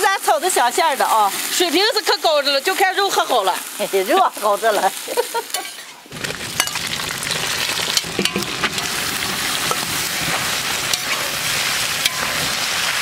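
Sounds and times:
pork sizzling in a wok: 0:00.0 - 0:13.0
ladle scraping a wok: 0:05.6 - 0:13.0.

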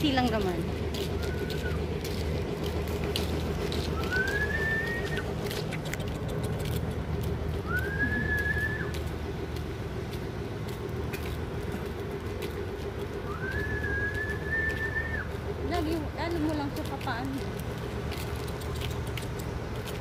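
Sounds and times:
low hum of traffic or machinery: 0:00.0 - 0:20.0
whistle-like rising call: 0:04.0 - 0:05.3, 0:07.6 - 0:09.0, 0:13.3 - 0:15.3.

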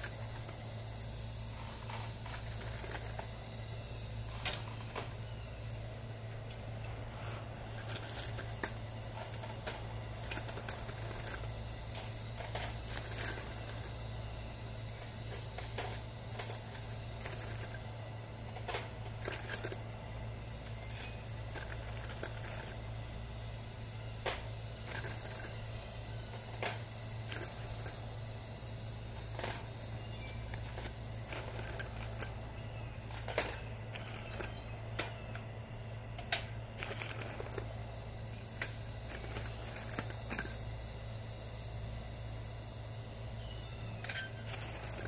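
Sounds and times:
screws clinking on metal mesh: 0:00.0 - 0:00.6, 0:01.7 - 0:03.3, 0:07.2 - 0:14.0, 0:14.6 - 0:19.9, 0:20.6 - 0:23.1, 0:24.2 - 0:25.7, 0:26.6 - 0:28.6, 0:30.6 - 0:35.1, 0:36.3 - 0:37.8, 0:38.5 - 0:40.7, 0:44.0 - 0:45.0
steady low hum: 0:00.0 - 0:45.0.

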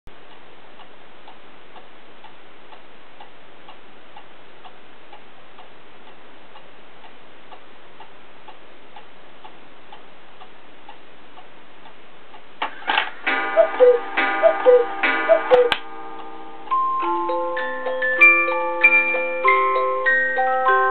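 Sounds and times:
clock ticking: 0:00.1 - 0:18.5
clock strike mechanism clicking: 0:12.6 - 0:16.8
cuckoo clock calls: 0:12.7 - 0:16.9.

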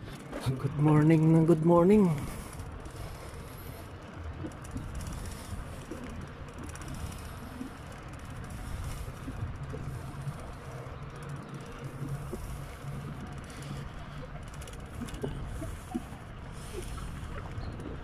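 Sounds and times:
rolling rumble of bicycle: 0:00.0 - 0:18.0.

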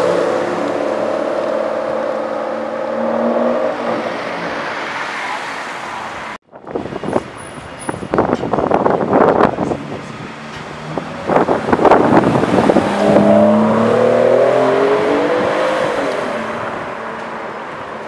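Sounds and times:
car engine passing by: 0:10.1 - 0:17.7.

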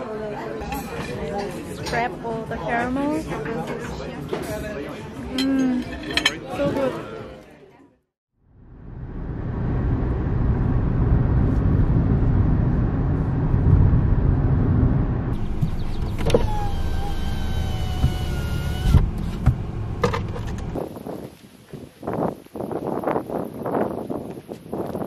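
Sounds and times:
car road and wind rumble: 0:08.4 - 0:25.0.

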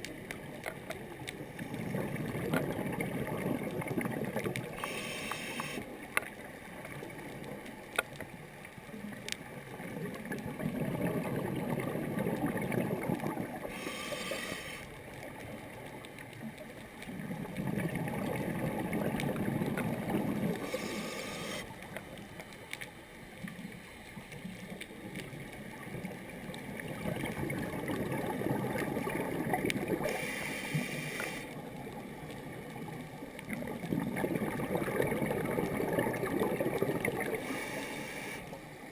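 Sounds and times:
gurgling exhaled bubbles: 0:01.5 - 0:05.8, 0:09.0 - 0:15.5, 0:17.1 - 0:21.7, 0:25.3 - 0:38.4
breath hissing through regulator: 0:04.8 - 0:05.8, 0:13.7 - 0:14.9, 0:20.6 - 0:21.7, 0:30.0 - 0:31.5, 0:37.4 - 0:38.6.

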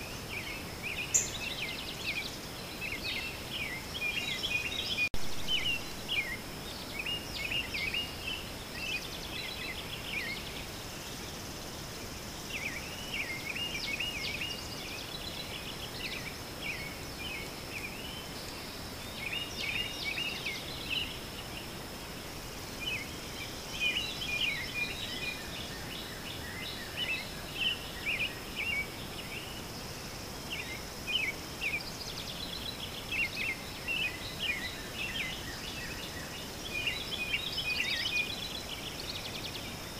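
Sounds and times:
high insect drone: 0:00.0 - 0:02.9
songbirds chirping: 0:00.0 - 0:39.9.

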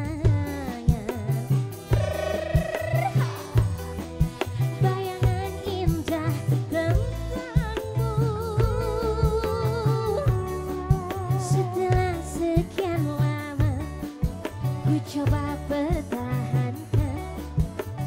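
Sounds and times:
repeating drum beat: 0:01.8 - 0:04.8.

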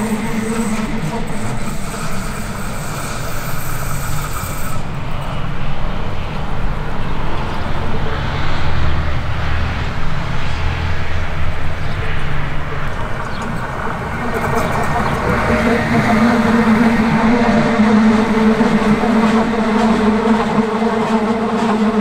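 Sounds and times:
high hiss: 0:00.0 - 0:05.6
electric train rumbling on rails: 0:00.0 - 0:22.0.

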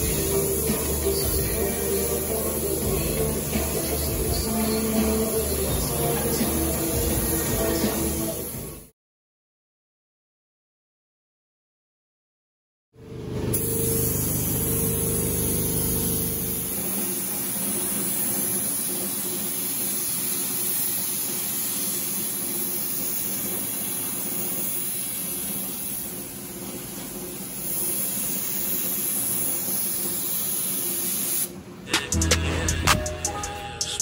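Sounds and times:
spray gun air hiss: 0:00.0 - 0:08.9, 0:13.5 - 0:31.6.

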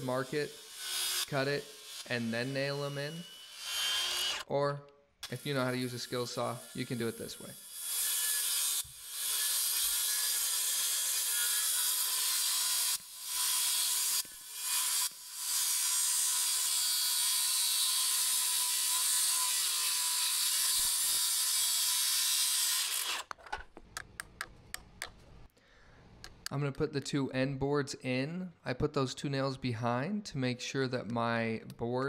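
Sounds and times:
circular saw cutting wood: 0:00.0 - 0:04.5, 0:05.2 - 0:23.3.

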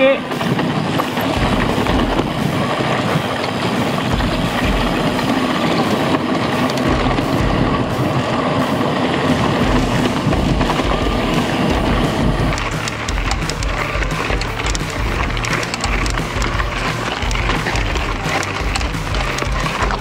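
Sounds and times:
bike tyres and rattling: 0:00.0 - 0:20.0
low thumps from bumps: 0:01.0 - 0:03.1, 0:04.0 - 0:05.4, 0:06.8 - 0:08.0, 0:09.6 - 0:20.0.

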